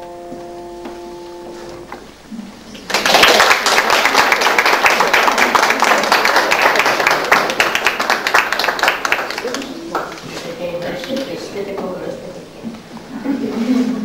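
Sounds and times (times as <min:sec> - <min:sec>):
small audience applauding: 0:02.7 - 0:11.3.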